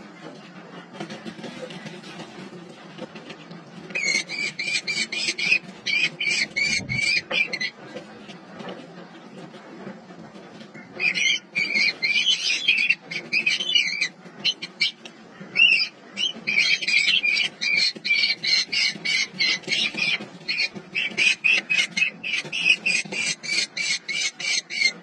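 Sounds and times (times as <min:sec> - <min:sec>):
nestlings rasping begging calls: 0:04.0 - 0:07.7, 0:15.6 - 0:24.9.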